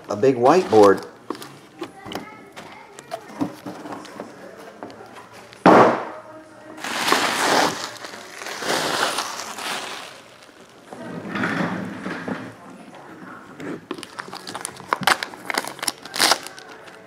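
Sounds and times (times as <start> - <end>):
bubble wrap crinkling: 0.0 - 3.3, 6.8 - 11.0, 13.6 - 17.0.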